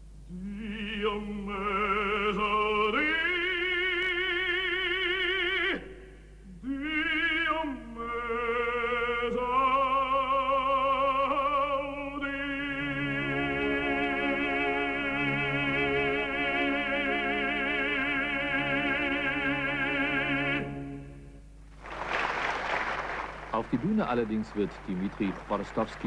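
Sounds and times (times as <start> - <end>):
operatic baritone singing: 0.3 - 5.8.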